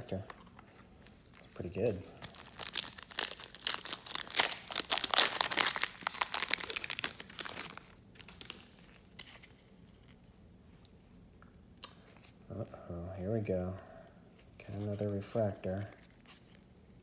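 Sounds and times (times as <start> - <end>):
foil pack tearing and crinkling: 2.2 - 8.7.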